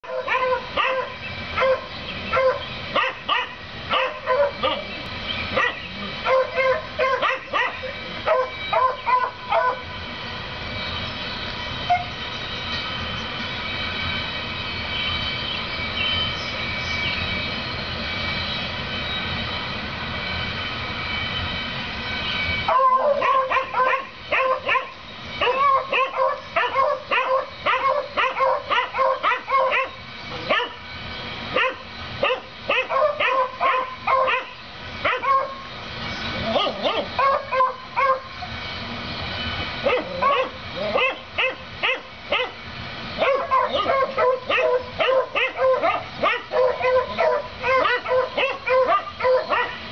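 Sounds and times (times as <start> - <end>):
dogs barking excitedly: 0.0 - 5.0, 5.6 - 9.9, 22.7 - 30.8, 31.5 - 35.6, 36.4 - 38.3, 39.8 - 42.6, 43.2 - 49.9.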